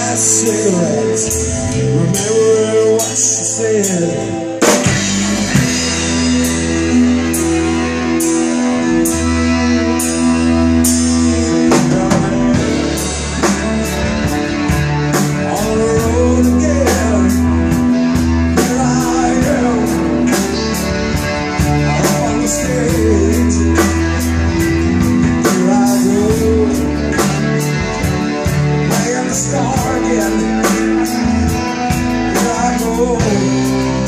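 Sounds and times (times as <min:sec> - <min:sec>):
live rock band playing: 0:00.0 - 0:34.0
person singing: 0:00.0 - 0:34.0.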